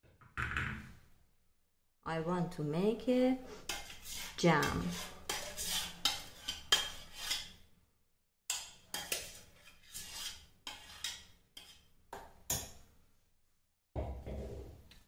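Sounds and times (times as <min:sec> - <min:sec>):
metal utensil scraping a bowl: 0:03.5 - 0:07.7, 0:08.5 - 0:11.9.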